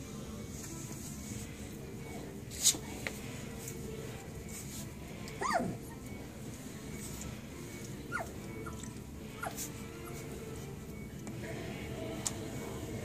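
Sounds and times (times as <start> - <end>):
puppies crying: 5.4 - 6.1, 8.0 - 10.4.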